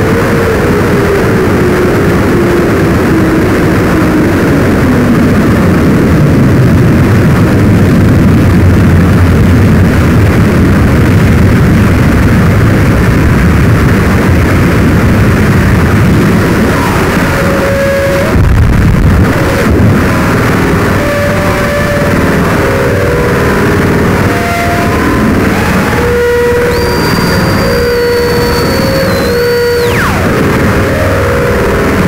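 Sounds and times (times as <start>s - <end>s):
steady low drone: 0.0s - 32.0s
harsh electronic noise music: 14.6s - 32.0s
higher electronic tone: 16.0s - 32.0s
tone sliding down in pitch: 16.5s - 18.6s, 20.2s - 31.7s.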